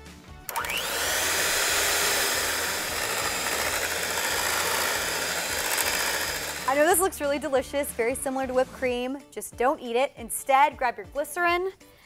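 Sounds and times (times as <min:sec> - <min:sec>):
electric hand mixer whirring: 0:00.5 - 0:07.0.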